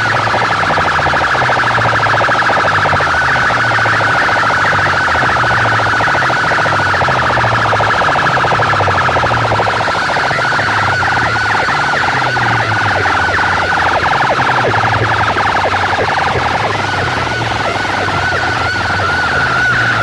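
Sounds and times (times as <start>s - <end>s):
dance music through loudspeakers: 0.0s - 20.0s
siren-like synth tone: 0.0s - 20.0s
stepping bass line: 0.0s - 20.0s.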